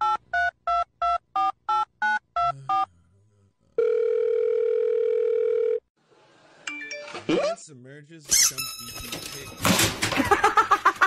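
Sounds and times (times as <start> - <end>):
phone ringback tone: 3.8 - 5.8.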